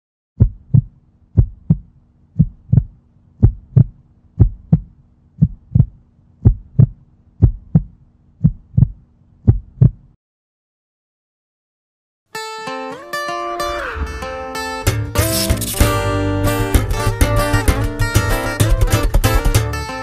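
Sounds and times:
heartbeat thumps: 0:00.4 - 0:10.2
low steady hum: 0:00.4 - 0:10.2.

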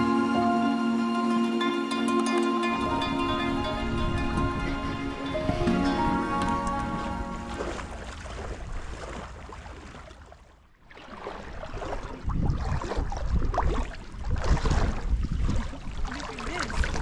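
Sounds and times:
low rumbling: 0:02.6 - 0:10.0
wind on microphone: 0:02.8 - 0:09.2, 0:11.6 - 0:17.0.

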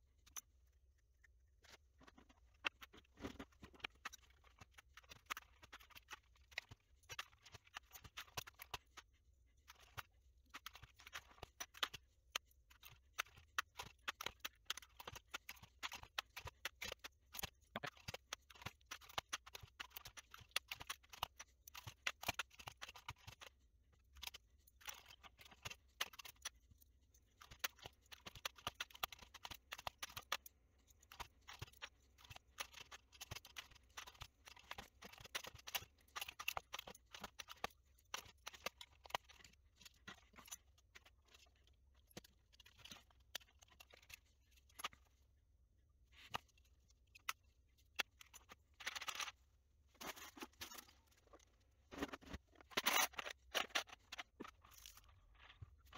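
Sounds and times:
plastic keycaps clicking and rattling: 0:02.0 - 0:09.0, 0:09.6 - 0:45.1, 0:51.9 - 0:55.1.

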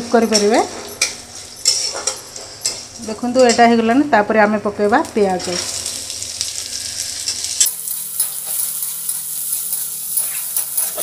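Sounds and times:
onion sizzling in hot oil: 0:04.7 - 0:11.0
steel spatula stirring: 0:07.6 - 0:11.0.

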